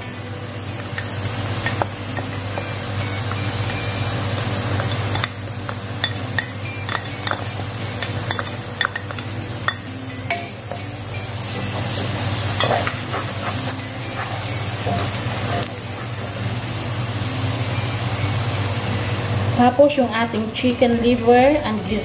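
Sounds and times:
oil sizzling in a wok: 0.0s - 22.0s.

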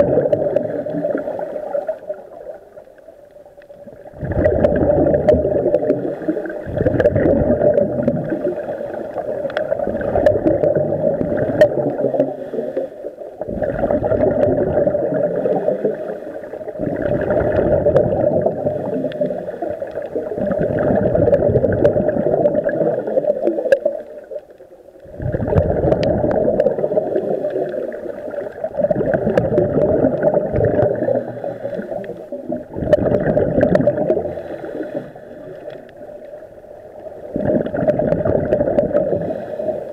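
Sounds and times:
underwater bubbles gurgling: 0.0s - 39.9s.

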